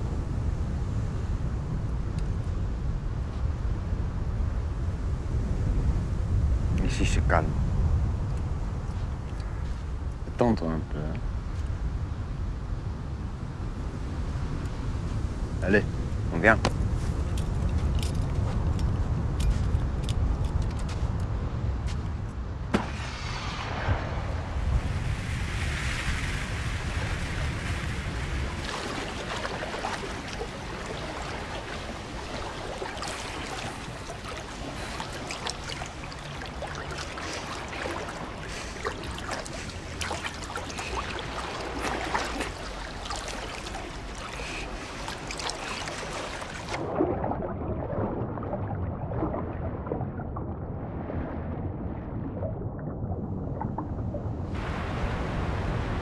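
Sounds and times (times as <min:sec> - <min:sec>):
sea water surging and splashing: 0:22.5 - 0:56.0.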